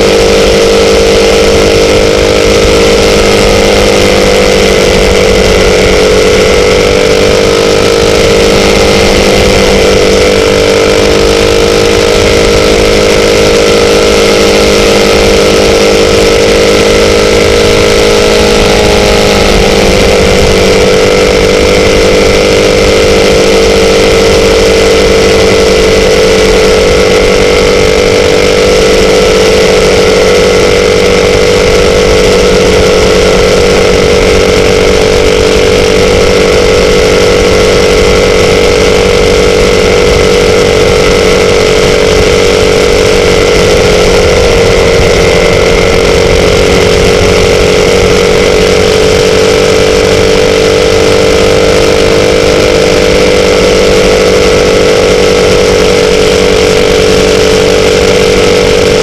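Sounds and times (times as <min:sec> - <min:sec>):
motorcycle engine running: 0:00.0 - 0:59.0.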